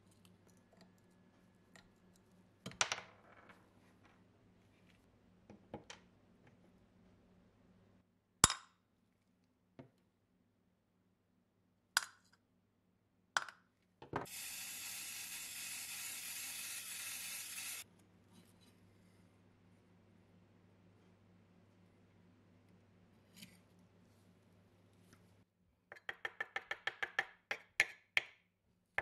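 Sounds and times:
steady hiss: 14.3 - 17.8.

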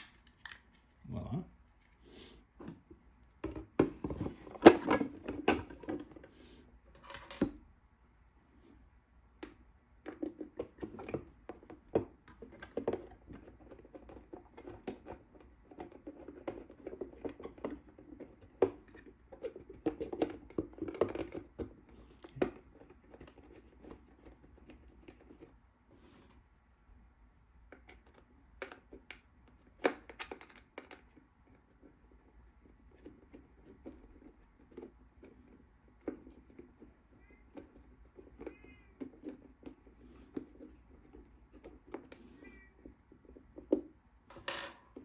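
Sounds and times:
plastic box clicks and scraping: 10.1 - 25.4.

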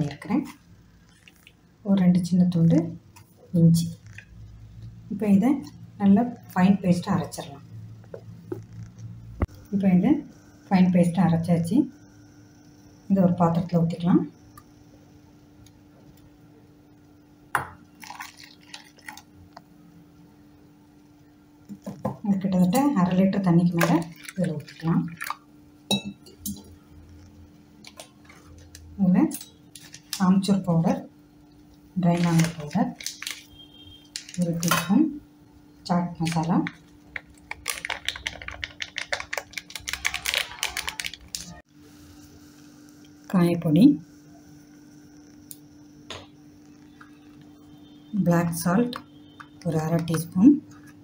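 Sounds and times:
foil sachet crinkling: 18.0 - 19.2, 29.7 - 30.6, 32.0 - 35.0, 36.2 - 41.6.

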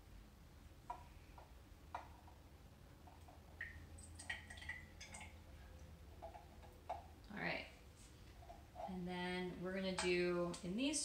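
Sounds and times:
liquid pouring between glass containers: 3.0 - 7.2.

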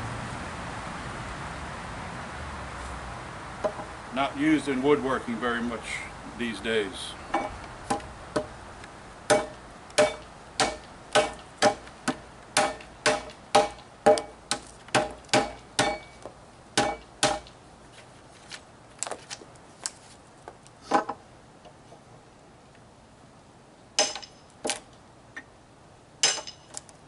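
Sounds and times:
hammer striking wood chisel: 9.3 - 16.2, 16.8 - 17.5, 24.0 - 24.8, 26.2 - 26.8.

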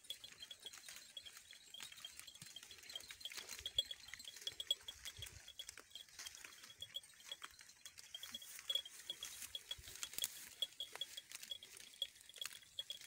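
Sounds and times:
goats tearing and chewing grass: 0.0 - 13.0
high chirp: 8.1 - 13.0.

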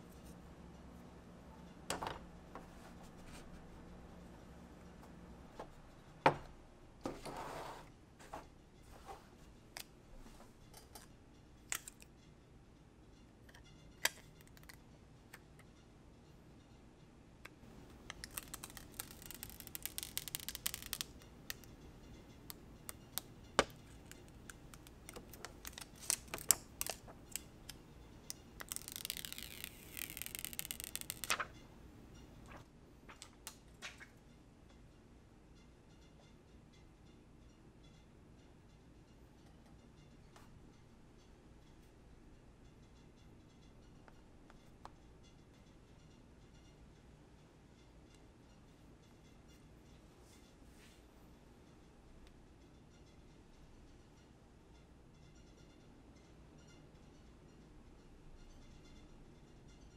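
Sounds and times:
packaging rustling: 17.9 - 21.7, 23.6 - 27.8.

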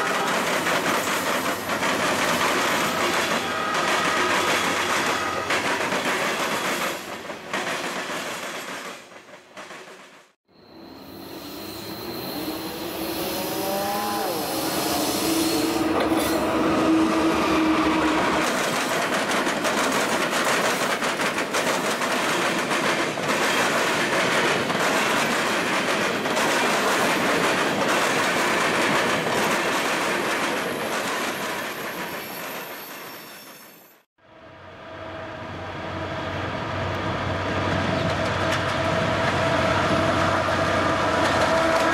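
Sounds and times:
wheels clacking over rail joints: 0.0 - 10.3, 18.2 - 32.1
diesel locomotive hum: 34.2 - 41.9.

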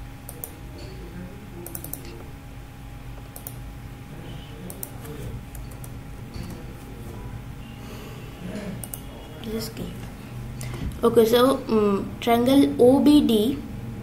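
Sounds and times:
low steady hum: 0.0 - 14.0
mouse clicks: 3.2 - 3.6, 8.8 - 9.1.

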